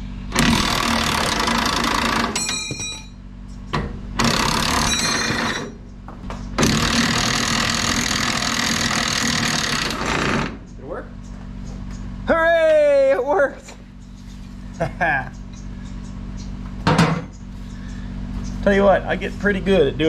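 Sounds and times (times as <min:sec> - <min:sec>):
impact wrench hammering: 0:00.3 - 0:03.2, 0:03.8 - 0:05.8.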